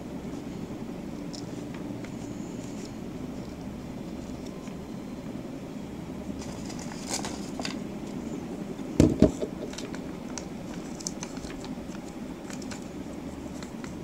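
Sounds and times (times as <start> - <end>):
steady low hum: 0.0 - 14.0
paper leaflet crackling: 6.4 - 8.3, 9.4 - 14.0.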